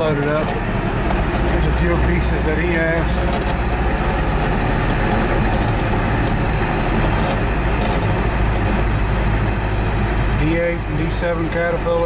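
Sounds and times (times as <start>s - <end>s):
truck engine drone: 0.0s - 12.0s
tyre and wind noise: 3.0s - 10.4s.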